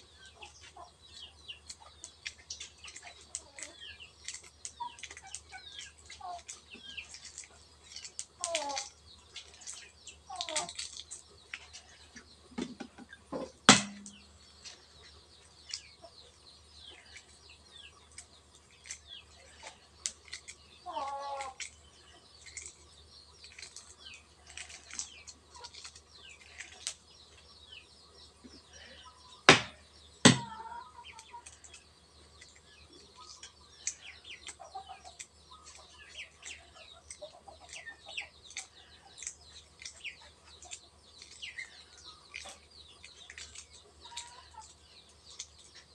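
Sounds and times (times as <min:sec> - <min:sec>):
eggshell crackling: 0:00.0 - 0:45.9
small birds chirping: 0:00.0 - 0:45.9
sharp knocks: 0:13.4 - 0:14.2, 0:29.5 - 0:30.5.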